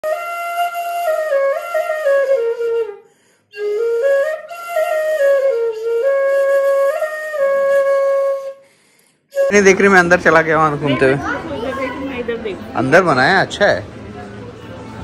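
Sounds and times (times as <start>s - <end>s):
solo flute melody: 0.0s - 8.7s, 9.3s - 11.0s.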